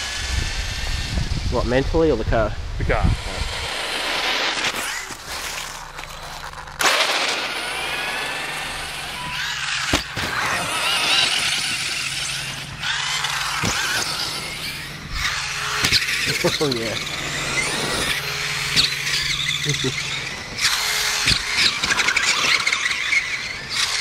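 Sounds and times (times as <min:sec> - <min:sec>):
rc truck motors whining: 0:00.0 - 0:24.0
tyres churning through snow: 0:00.0 - 0:24.0.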